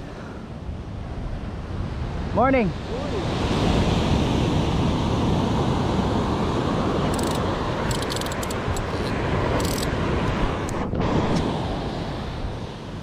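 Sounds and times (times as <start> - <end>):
surf rushing on shore: 0.0 - 13.0
wind rumbling on microphone: 0.0 - 13.0
fishing reel clicking: 7.1 - 9.9.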